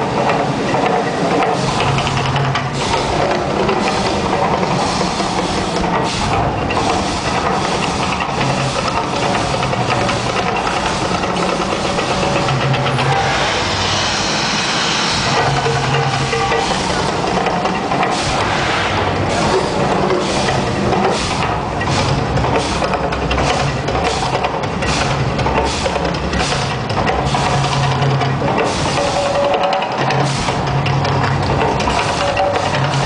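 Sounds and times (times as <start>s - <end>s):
rushing gas flames: 0.0s - 33.0s
deep droning rumble: 12.2s - 24.1s.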